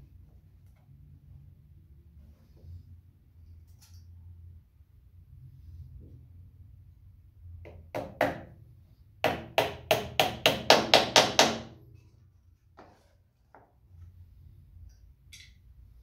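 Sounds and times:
hammer tapping nails into wood: 9.2 - 11.7.

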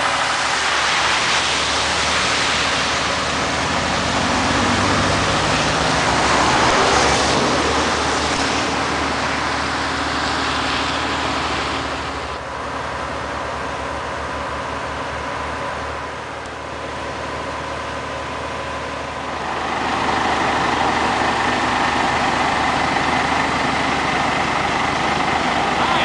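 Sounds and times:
tyre hiss on wet road: 0.0 - 12.4
diesel engine idling: 0.0 - 26.0.

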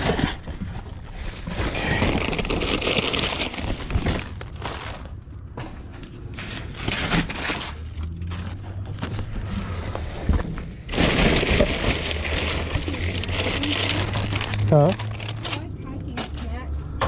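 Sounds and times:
plastic packaging crinkling: 0.0 - 5.5, 10.8 - 15.8
cardboard crunching: 0.0 - 15.6.

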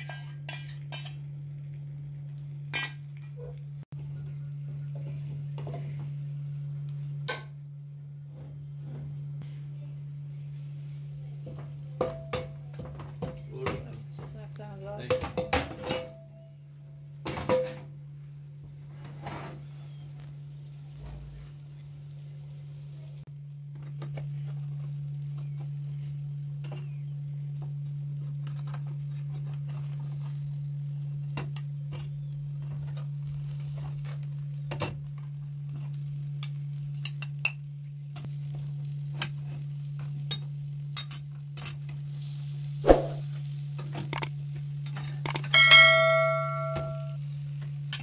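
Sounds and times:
metal utensils scraping a pan: 0.0 - 1.3
light sizzling: 0.0 - 14.7, 18.1 - 48.0
low hum: 42.7 - 43.4, 45.2 - 47.3
sharp metal clank: 45.3 - 47.2.

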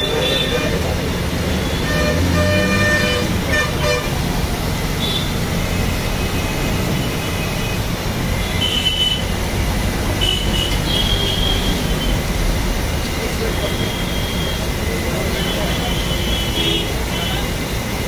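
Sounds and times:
road traffic rumble: 0.0 - 18.0
vehicle horn toots: 1.5 - 4.2, 8.4 - 9.3, 10.2 - 12.2, 15.4 - 17.4.

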